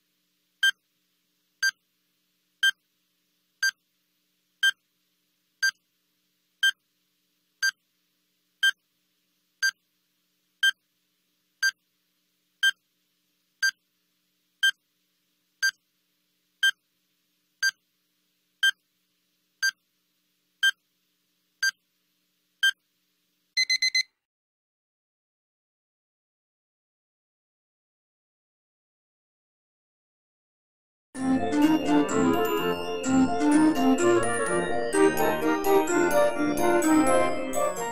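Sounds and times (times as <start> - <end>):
countdown timer beeping: 23.6 - 24.0
high-pitched alarm beeps: 23.6 - 24.1.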